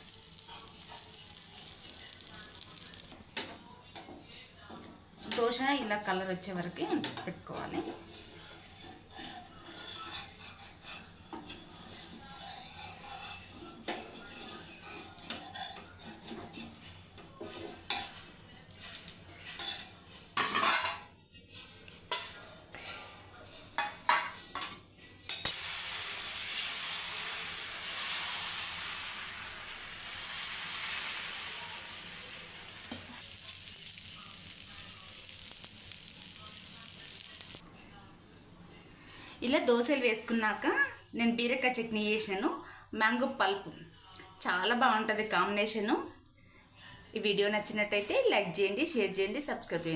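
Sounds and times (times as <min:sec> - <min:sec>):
batter sizzling in oil: 0:00.0 - 0:03.8, 0:07.8 - 0:20.0, 0:25.3 - 0:37.6
metal spatula scraping pan: 0:08.0 - 0:16.8.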